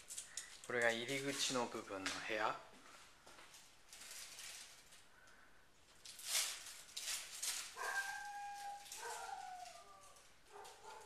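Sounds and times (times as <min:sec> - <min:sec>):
dog whining: 0:07.8 - 0:11.0.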